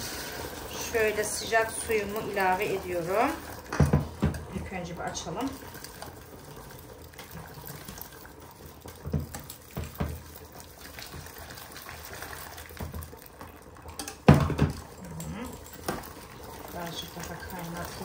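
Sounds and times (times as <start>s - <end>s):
hot water pouring into pot: 0.0s - 18.0s
wire whisk stirring: 1.5s - 18.0s
knocks on steel pot: 14.3s - 14.8s.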